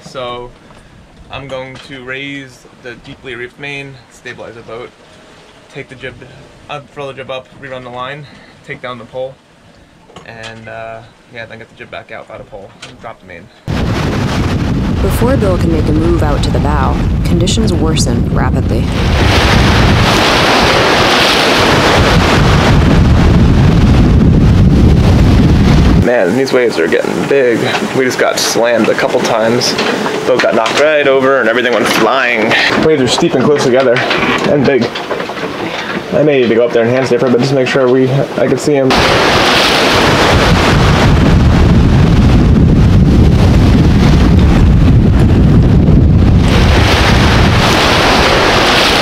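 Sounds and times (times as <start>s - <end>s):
wind buffeting microphone: 13.6s - 49.0s
waves breaking: 13.7s - 49.0s.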